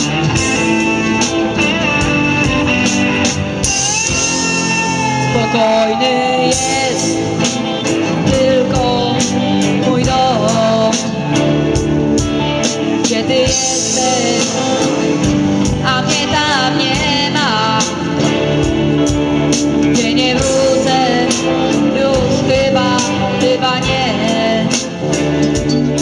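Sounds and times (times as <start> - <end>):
drum beat: 0.0 - 7.9
electric guitars: 0.0 - 26.0
rock band playing: 0.0 - 26.0.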